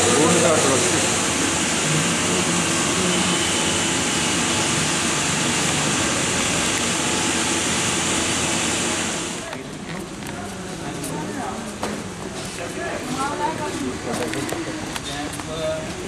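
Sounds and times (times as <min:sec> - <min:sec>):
loud rushing hiss: 0:00.0 - 0:09.5.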